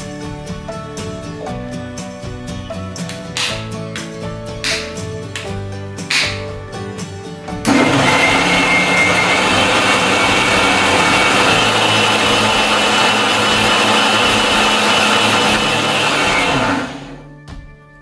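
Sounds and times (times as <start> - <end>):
background music: 0.0 - 18.0
mixer grinder whining: 7.6 - 17.3.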